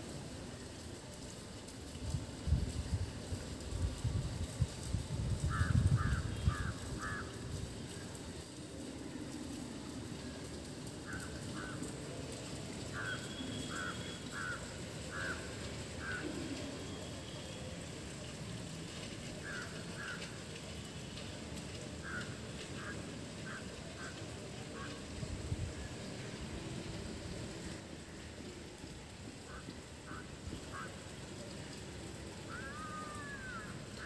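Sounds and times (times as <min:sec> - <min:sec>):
crow cawing: 0:05.5 - 0:07.4, 0:11.0 - 0:11.9, 0:12.9 - 0:16.4, 0:19.4 - 0:20.4, 0:22.0 - 0:25.0, 0:29.4 - 0:31.1, 0:32.5 - 0:34.0.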